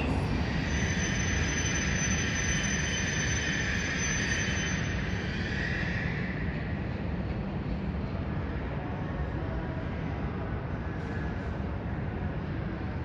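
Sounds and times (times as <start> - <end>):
thin high-pitched whine: 0.0 - 5.8.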